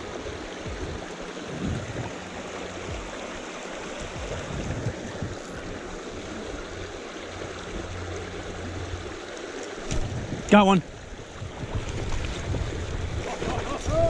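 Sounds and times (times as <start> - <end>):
stream water rushing over rocks: 0.0 - 14.0
soft low thumps: 0.6 - 2.2, 2.8 - 3.2.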